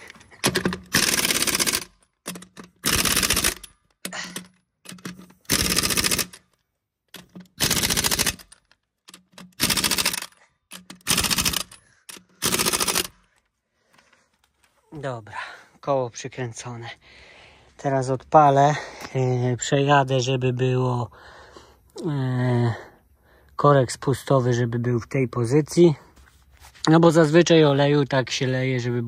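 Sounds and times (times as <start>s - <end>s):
pneumatic impact wrench rattling: 0.0s - 6.5s, 7.1s - 13.4s.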